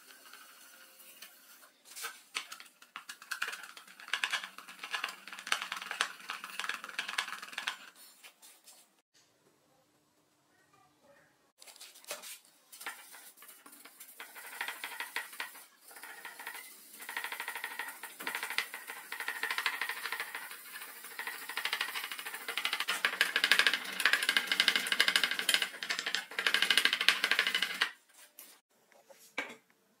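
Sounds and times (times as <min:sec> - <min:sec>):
scratchy brush strokes: 0:11.7 - 0:15.7.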